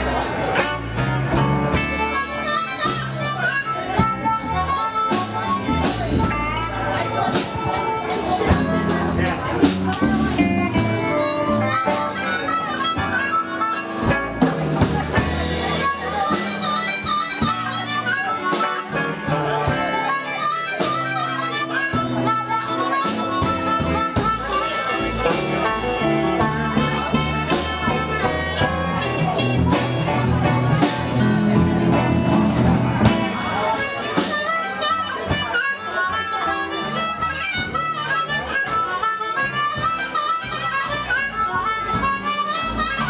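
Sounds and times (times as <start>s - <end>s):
drums steady beat: 0.0s - 34.7s, 39.4s - 43.0s
blues harmonica solo: 0.0s - 43.0s
upright bass: 0.0s - 43.0s
electric guitar: 4.0s - 34.4s.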